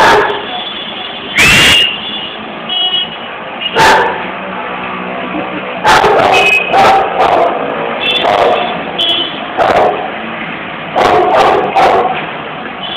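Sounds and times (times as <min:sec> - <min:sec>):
dog barking: 0:00.0 - 0:00.5, 0:03.7 - 0:04.3, 0:05.8 - 0:08.8, 0:09.6 - 0:10.1, 0:10.9 - 0:12.2.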